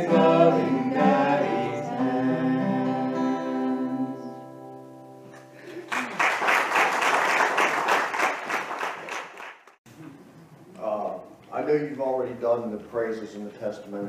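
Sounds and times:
acoustic guitar chord ringing: 0.0s - 5.6s
audience applauding: 5.4s - 9.8s.

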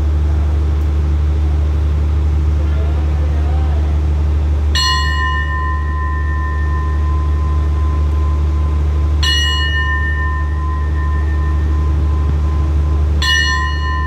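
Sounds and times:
steady low rumble: 0.0s - 14.0s
two-tone bell ringing: 4.8s - 14.0s.

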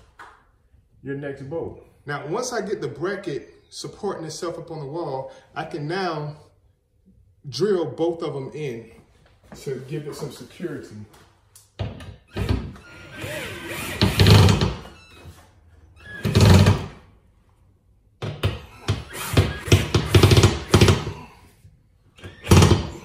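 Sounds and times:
cordless drill driving bolt: 12.3s - 14.9s.

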